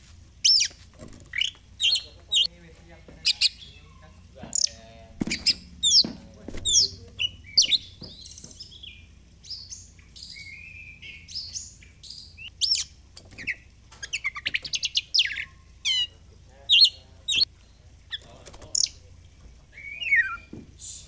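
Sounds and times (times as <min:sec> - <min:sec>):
bird singing whistles: 0:06.7 - 0:16.1, 0:19.8 - 0:21.0.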